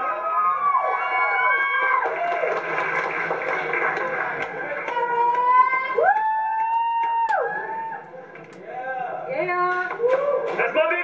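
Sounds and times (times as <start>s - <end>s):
crowd cheering and shouting: 0.0s - 2.6s, 4.9s - 8.3s, 9.9s - 11.0s.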